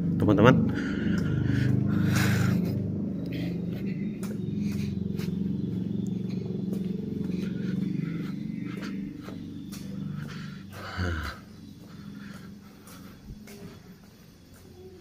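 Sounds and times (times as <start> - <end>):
steady low rumble: 0.0 - 14.4
footsteps on brick pavement: 0.0 - 15.0.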